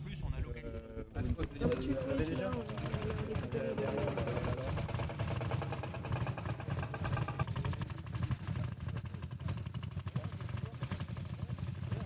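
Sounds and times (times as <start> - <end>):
tractor engine chugging: 1.9 - 12.0.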